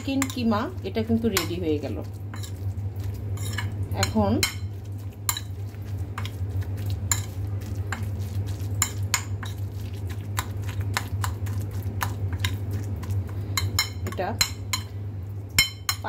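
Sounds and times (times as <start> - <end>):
metal spoon scraping ceramic plate: 3.4 - 3.7.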